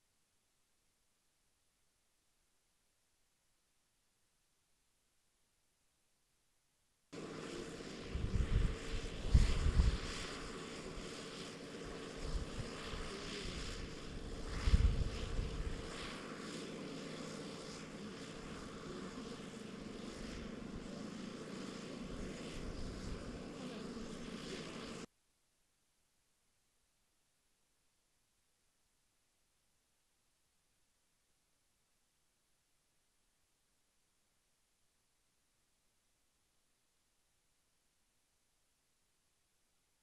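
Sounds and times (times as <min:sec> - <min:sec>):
wind buffeting the microphone: 0:08.0 - 0:11.0, 0:12.0 - 0:16.0.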